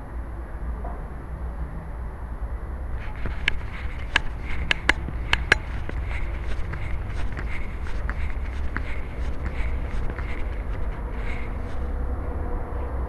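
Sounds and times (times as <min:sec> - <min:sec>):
collar camera rattling and rubbing: 0:03.0 - 0:12.0.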